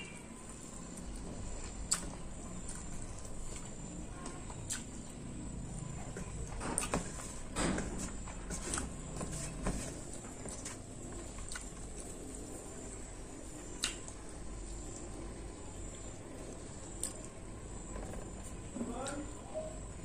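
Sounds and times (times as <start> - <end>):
chewing: 0.4 - 7.4, 8.0 - 15.3, 15.9 - 19.9
wet mouth clicks: 4.6 - 4.9, 13.8 - 14.2.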